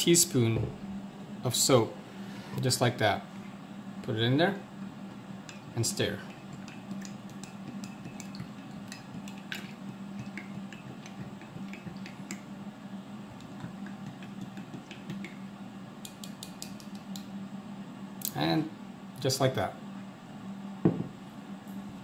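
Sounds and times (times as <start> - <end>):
spoon stirring water in mug: 6.2 - 12.5, 13.4 - 15.4
spoon clicking against mug: 16.0 - 17.3.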